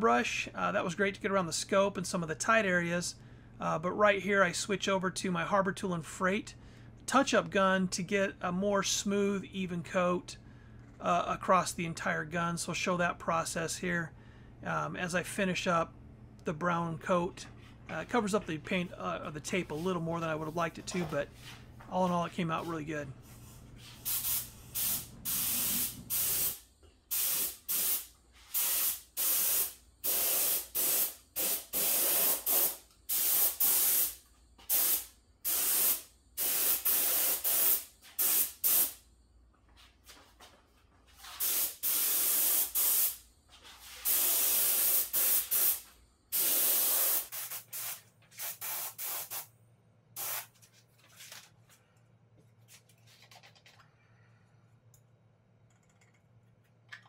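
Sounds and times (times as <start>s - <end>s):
faint handling sounds: 17.4s - 24.1s, 50.4s - 57.0s
spray gun hissing bursts: 23.3s - 39.0s, 41.3s - 43.2s, 43.8s - 49.5s, 50.2s - 50.5s.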